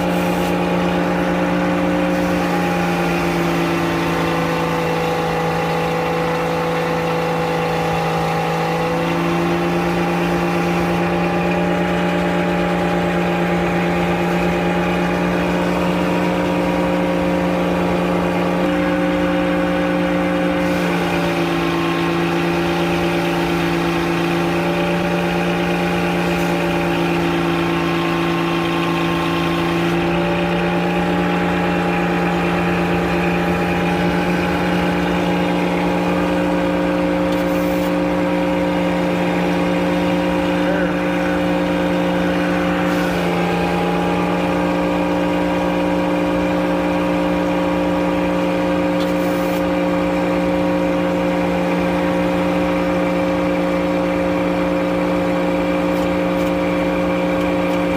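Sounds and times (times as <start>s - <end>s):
circular sawmill running: 0.0s - 57.9s.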